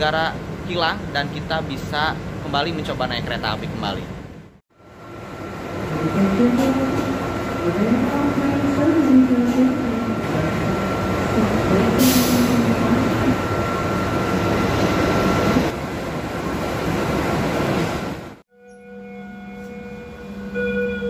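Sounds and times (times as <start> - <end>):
locomotive engine rumble: 0.0 - 18.4
thin steady whine: 4.8 - 15.7
short hiss: 12.0 - 12.6.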